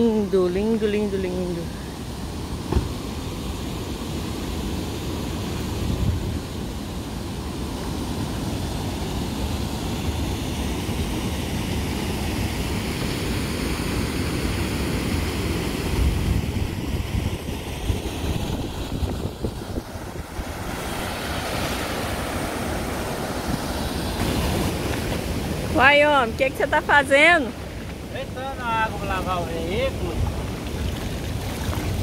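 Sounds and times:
river water rushing: 0:00.8 - 0:32.0
wind buffeting microphone: 0:15.8 - 0:26.6.

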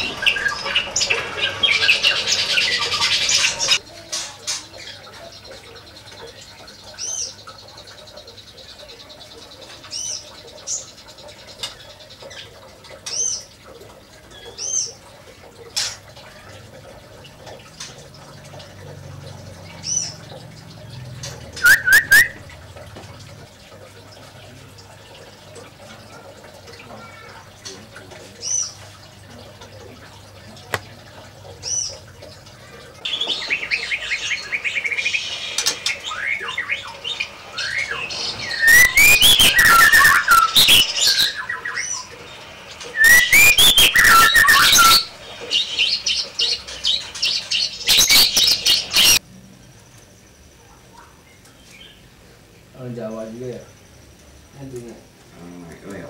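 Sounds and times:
songbird whistling and chirping: 0:21.6 - 0:22.6, 0:33.1 - 0:42.1, 0:42.9 - 0:46.6, 0:47.8 - 0:49.2.

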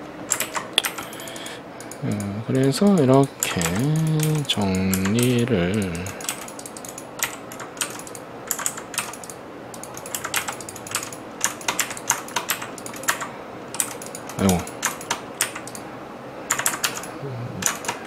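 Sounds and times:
computer keyboard typing: 0:00.3 - 0:15.9, 0:16.5 - 0:18.0
brief wordless vocal sound: 0:03.4 - 0:06.2, 0:17.1 - 0:17.7.

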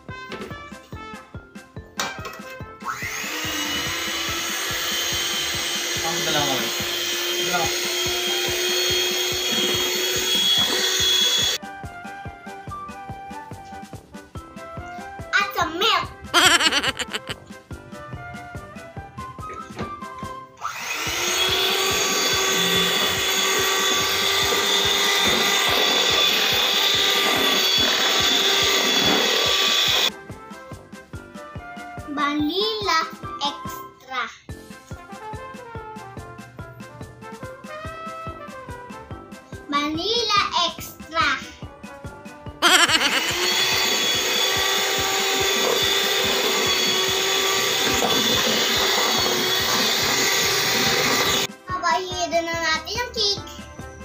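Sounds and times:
electric hand mixer whipping: 0:03.0 - 0:11.6, 0:16.4 - 0:17.4, 0:20.8 - 0:30.1, 0:42.6 - 0:51.5.

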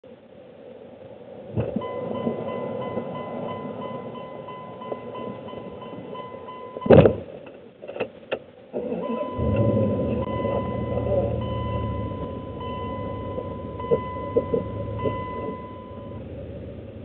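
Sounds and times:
truck engine starting and running: 0:01.5 - 0:17.0
electronic warning tone: 0:09.0 - 0:16.3.

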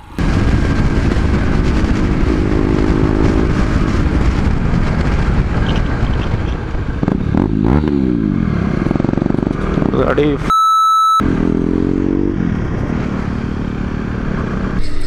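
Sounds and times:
wind rush on microphone: 0:00.0 - 0:10.0
motorcycle engines running: 0:00.0 - 0:10.5, 0:11.2 - 0:15.0.

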